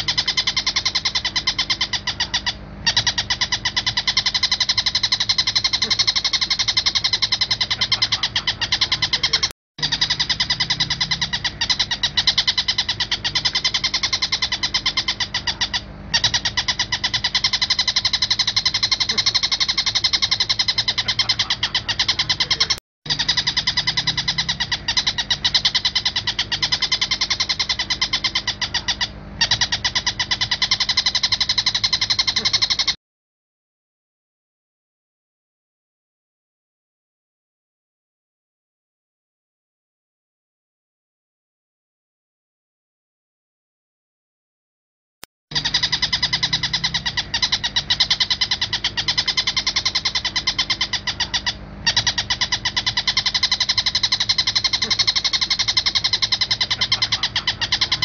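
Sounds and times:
bird calling rapid repeated notes: 0:00.0 - 0:33.0, 0:45.5 - 0:58.0.

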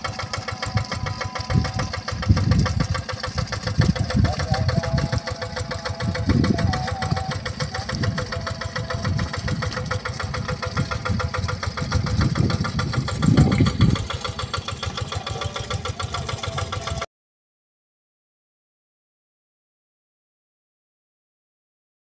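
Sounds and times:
diesel engine running: 0:00.0 - 0:17.1.

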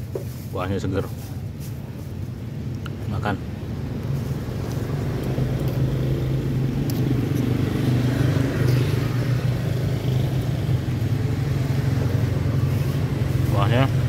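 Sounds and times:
vehicle engine droning: 0:03.4 - 0:14.0.

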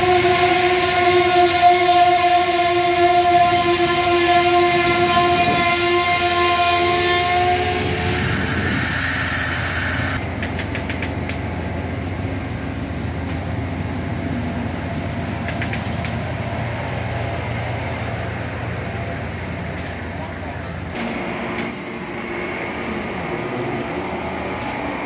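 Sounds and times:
train horn tone: 0:00.0 - 0:09.0
low rumble of train cars: 0:00.0 - 0:25.0
train brake hiss: 0:08.0 - 0:10.2, 0:21.5 - 0:22.5
train wheel clicks: 0:09.6 - 0:11.5, 0:15.4 - 0:16.2.

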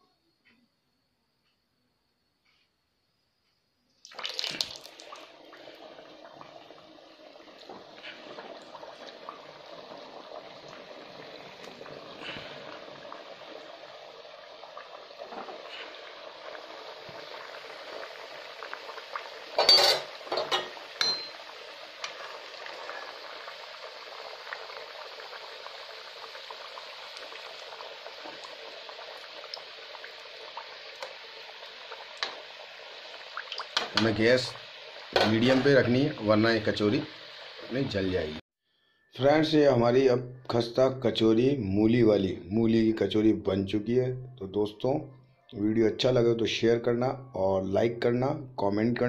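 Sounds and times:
food deep-frying in oil: 0:04.0 - 0:38.4.

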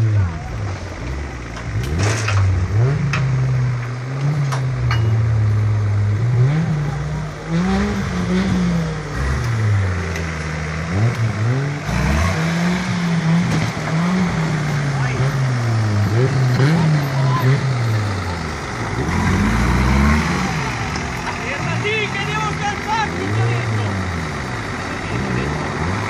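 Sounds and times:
car engine revving hard: 0:01.7 - 0:04.8, 0:05.8 - 0:26.0.

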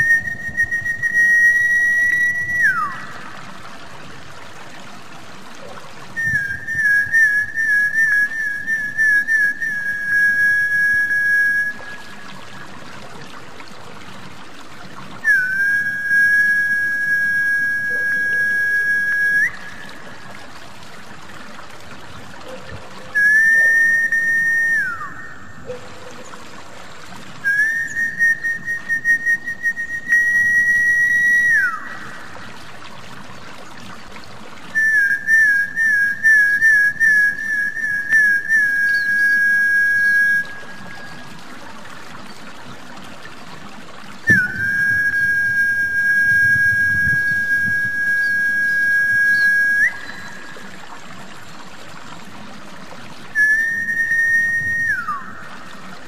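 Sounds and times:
long high whistles: 0:00.0 - 0:03.2, 0:06.2 - 0:12.2, 0:15.2 - 0:20.0, 0:23.1 - 0:25.8, 0:27.4 - 0:32.2, 0:34.7 - 0:41.2, 0:44.3 - 0:50.7, 0:53.3 - 0:55.8
water trickling: 0:00.0 - 0:56.0.

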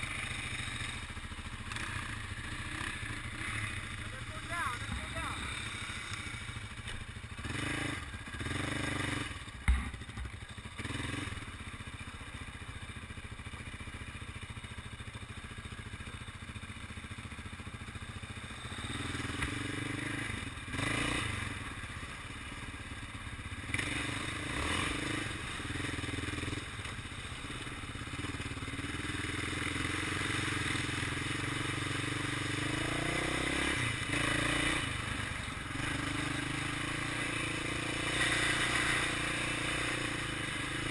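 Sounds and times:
atv engine running: 0:00.0 - 0:40.9.

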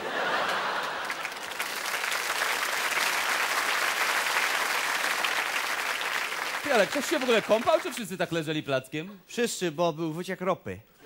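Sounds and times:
audience applauding: 0:00.0 - 0:08.2.

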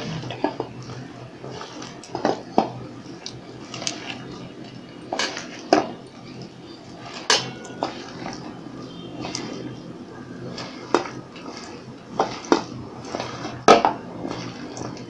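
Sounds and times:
wet stirring in batter: 0:00.0 - 0:15.0
clinks against steel bowl: 0:07.1 - 0:08.5.

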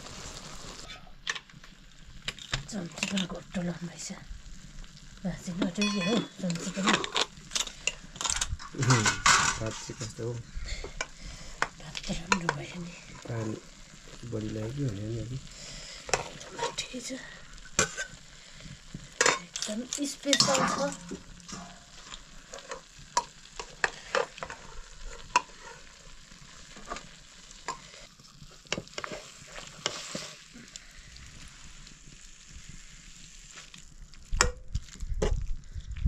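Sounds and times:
curry sizzling in a pan: 0:00.0 - 0:35.8
utensil scraping and knocking pan: 0:20.3 - 0:26.0.

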